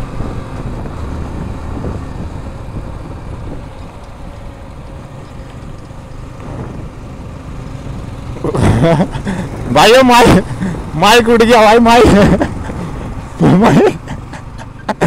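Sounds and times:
wind on microphone: 0:00.0 - 0:03.8, 0:06.4 - 0:07.0
motorcycle engine rumble: 0:00.0 - 0:15.0
road noise: 0:00.0 - 0:15.0.

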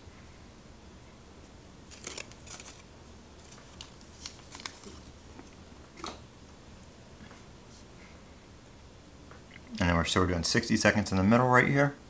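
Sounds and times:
small pieces clicking and rustling: 0:01.9 - 0:05.1.

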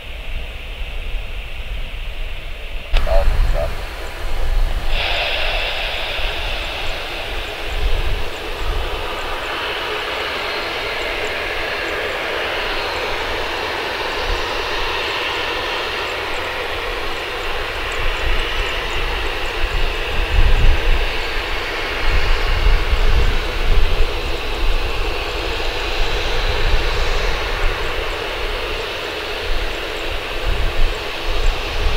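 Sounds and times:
jet engine whine and hiss: 0:00.0 - 0:31.9
low uneven rumble: 0:03.0 - 0:09.7.

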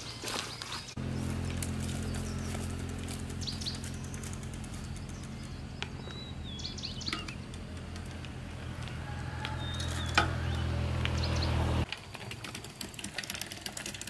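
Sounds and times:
birds chirping: 0:00.0 - 0:11.9
steady low hum: 0:00.9 - 0:11.9.

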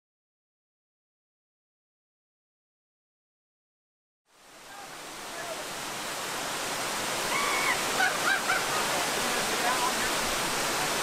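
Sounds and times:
small waterfall splashing: 0:04.3 - 0:11.0.

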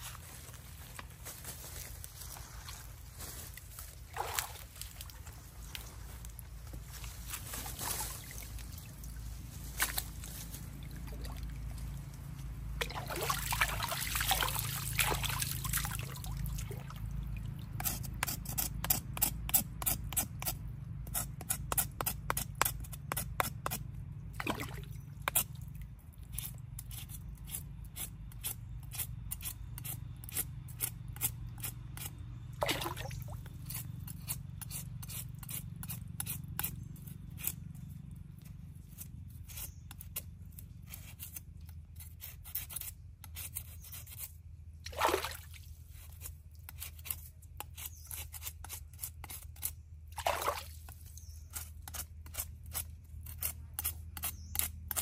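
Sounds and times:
water splashing and trickling: 0:04.0 - 0:05.3, 0:12.8 - 0:17.8, 0:24.4 - 0:26.0, 0:32.6 - 0:33.4, 0:44.9 - 0:45.9, 0:50.2 - 0:51.0.

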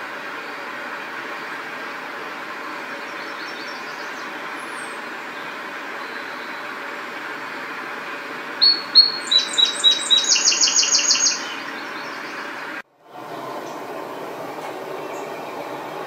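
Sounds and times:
steady background noise: 0:00.0 - 0:16.0
sparrow singing: 0:08.6 - 0:12.5.

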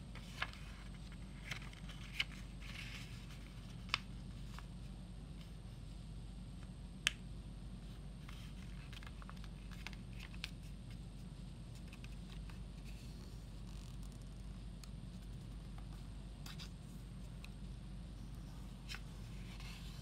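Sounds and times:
steady low hum: 0:00.0 - 0:20.0
paper crinkling and tapping: 0:03.3 - 0:04.6, 0:08.3 - 0:10.6.

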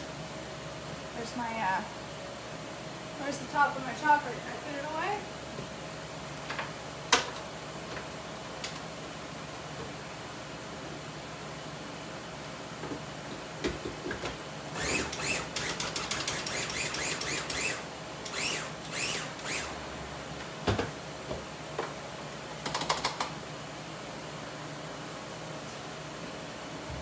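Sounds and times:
food chopper clicking and whirring: 0:13.6 - 0:19.8.

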